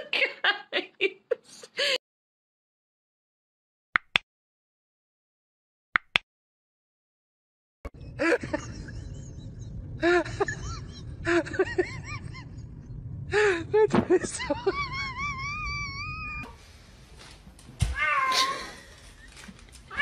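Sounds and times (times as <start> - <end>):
low outdoor rumble: 7.9 - 17.8.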